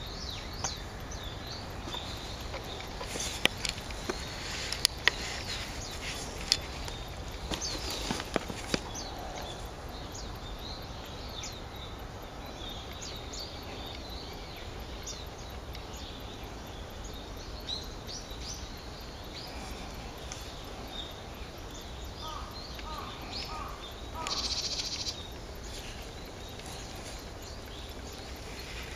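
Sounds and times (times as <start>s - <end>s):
small birds high calls: 0.0s - 28.9s
bird rapid rattling call: 22.2s - 28.9s.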